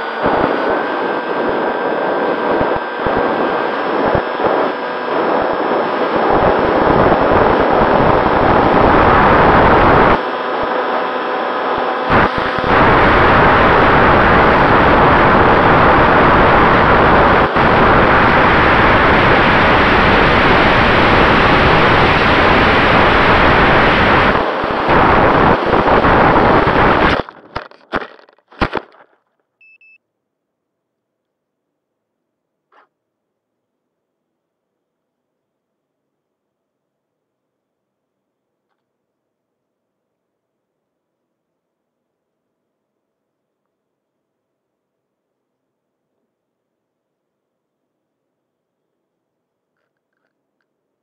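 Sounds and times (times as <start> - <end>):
electric motor and propeller whine: 0.0 - 27.3
wind rushing over microphone: 0.0 - 27.4.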